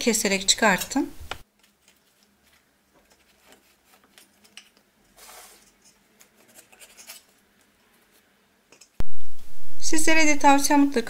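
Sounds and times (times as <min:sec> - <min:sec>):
papery scraping and rustling: 0:01.4 - 0:08.3.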